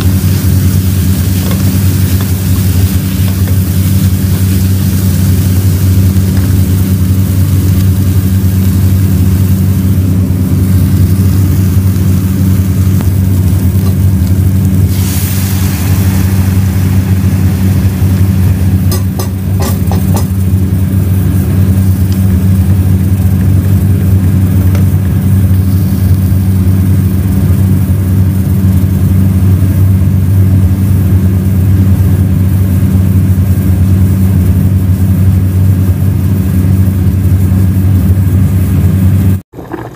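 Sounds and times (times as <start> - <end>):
liquid hissing in hot pot: 0.0 - 20.7
low mechanical hum: 0.0 - 39.9
wooden spoon knocking pot: 18.9 - 20.4.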